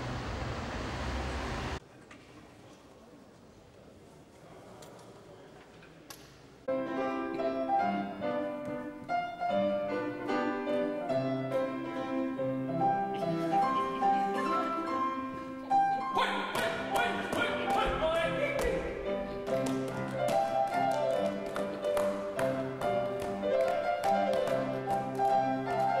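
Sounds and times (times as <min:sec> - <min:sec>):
grand piano classical piece: 0:06.7 - 0:26.0.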